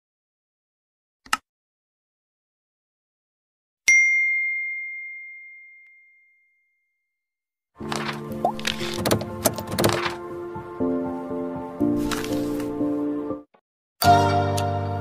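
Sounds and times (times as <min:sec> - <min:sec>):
bell ding: 0:03.9 - 0:07.0.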